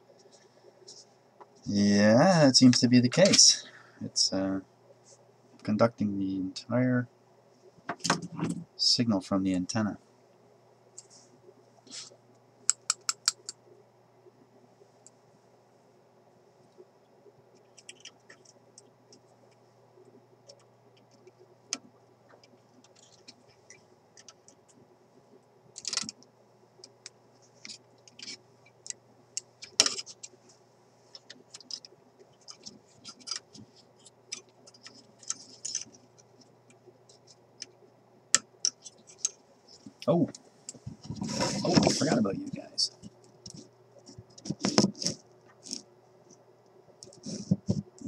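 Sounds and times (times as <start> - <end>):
faint hum: 0.0 - 48.0
hand tools clicking and scraping: 31.2 - 36.0.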